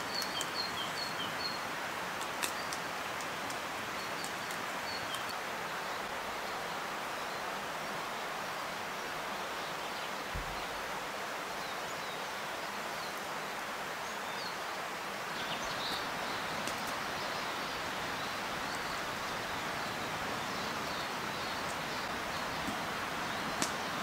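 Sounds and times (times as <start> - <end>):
rushing woodland ambience: 0.0 - 24.0
small birds chirping: 0.0 - 24.0
light ticks: 23.6 - 23.8.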